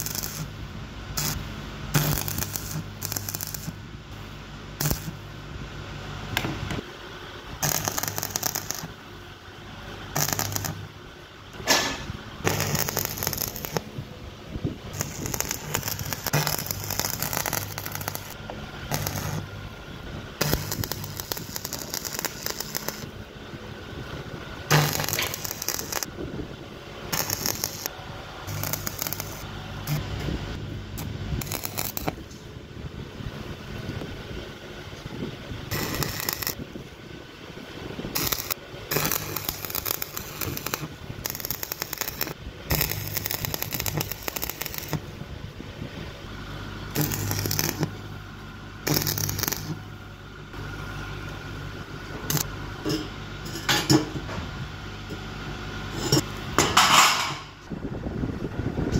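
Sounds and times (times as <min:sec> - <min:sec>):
welding arc crackling: 0:00.0 - 0:03.8, 0:04.8 - 0:05.2, 0:07.6 - 0:09.0, 0:10.1 - 0:11.0, 0:11.6 - 0:14.1, 0:14.8 - 0:19.8, 0:20.4 - 0:23.2, 0:24.6 - 0:26.1, 0:27.1 - 0:30.1, 0:31.0 - 0:32.3, 0:35.7 - 0:36.6, 0:38.1 - 0:45.1, 0:46.9 - 0:48.0, 0:48.8 - 0:49.8, 0:52.3 - 0:52.5
low hum: 0:00.0 - 0:58.9.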